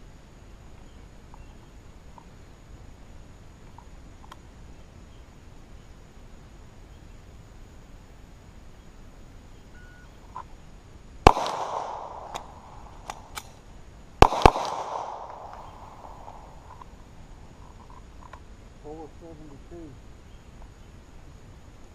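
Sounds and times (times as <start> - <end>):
faint ticks: 2.1 - 2.4, 3.6 - 4.5, 17.6 - 18.5
pistol shots with rolling echo: 11.2 - 13.5, 14.2 - 16.7.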